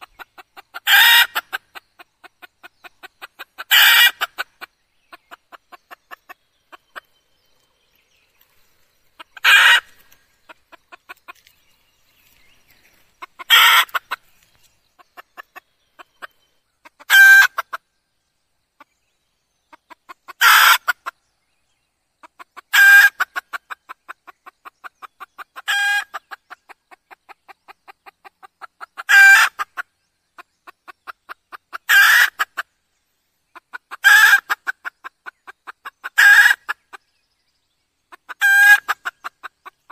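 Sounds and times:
soft rapid clucks: 0.0s - 7.7s, 9.2s - 11.7s, 13.2s - 17.8s, 19.7s - 21.2s, 22.2s - 32.6s
hen calling loudly: 0.7s - 1.6s, 3.3s - 4.4s, 9.2s - 10.1s, 13.2s - 14.2s.

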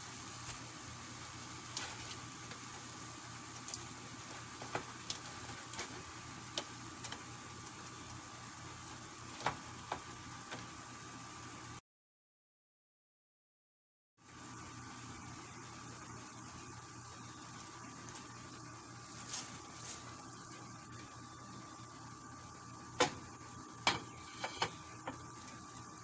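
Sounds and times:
pan hissing: 22.8s - 25.8s.

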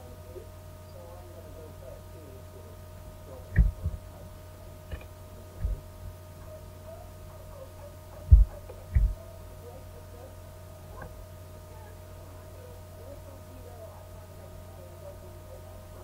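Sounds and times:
electrical hum: 0.0s - 16.0s
dull low thumps: 3.5s - 4.2s, 4.9s - 6.2s, 8.2s - 9.2s.

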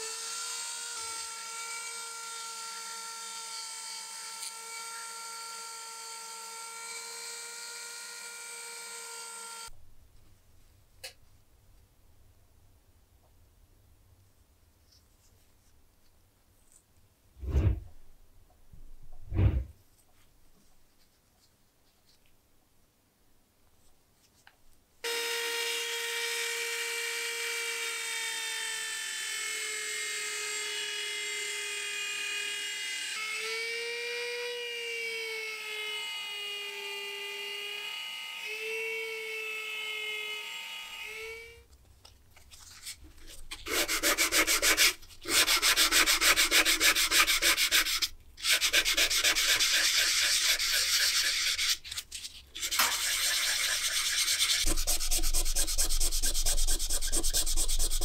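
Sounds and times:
rotary tool whining: 25.1s - 41.6s, 52.6s - 58.0s
hand sanding metal: 42.8s - 58.0s.

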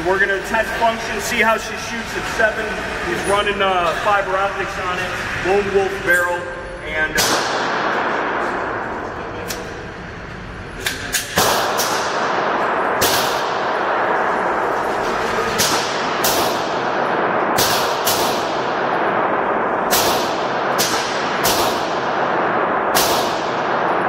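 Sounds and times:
pistol shots echoing indoors: 7.0s - 9.0s, 10.9s - 24.0s.

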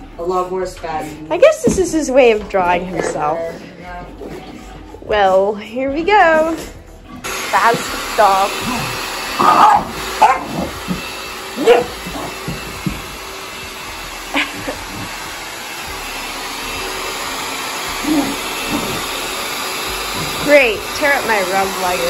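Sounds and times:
hair dryer running: 7.2s - 22.0s
puppy barking and yipping: 9.4s - 10.8s, 11.6s - 12.4s.

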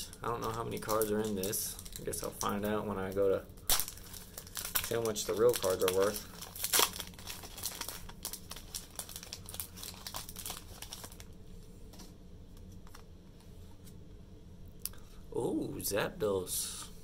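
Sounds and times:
foil pack crinkling: 0.0s - 11.3s
trading cards rustling: 0.3s - 11.2s.

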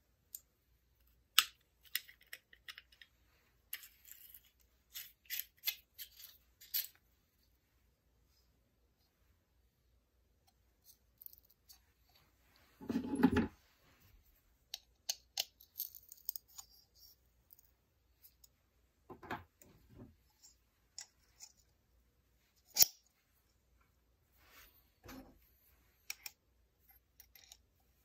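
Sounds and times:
small metal parts clicking: 14.7s - 16.8s.

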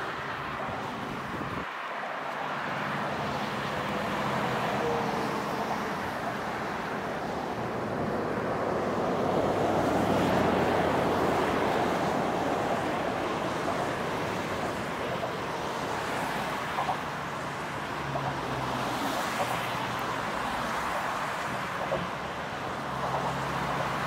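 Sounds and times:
road traffic: 0.0s - 24.0s.

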